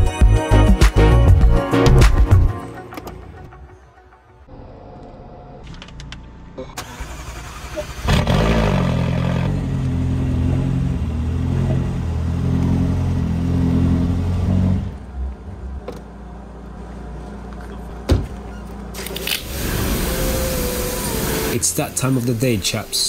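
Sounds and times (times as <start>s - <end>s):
car engine idling: 14.9s - 22.8s
pressure washer spraying water: 19.0s - 21.7s.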